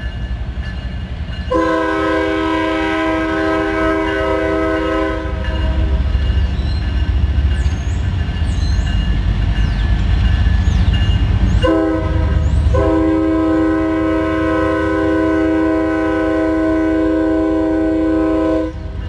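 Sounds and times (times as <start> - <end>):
locomotive engine and wheels rumbling: 0.0 - 19.0
locomotive chord horn blasts: 1.5 - 6.2, 11.6 - 19.0.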